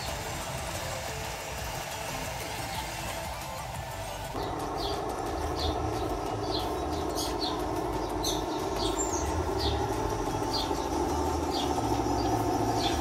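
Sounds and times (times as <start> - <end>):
toy bulldozer motor and gear whine: 0.0 - 13.0
tracks rattling: 0.0 - 13.0
bird chirping: 4.3 - 13.0.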